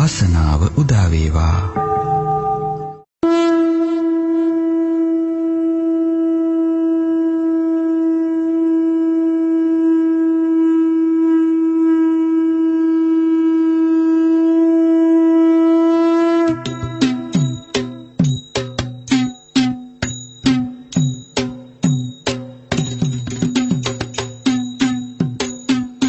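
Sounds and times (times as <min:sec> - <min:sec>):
long wind instrument note: 0:01.8 - 0:17.8.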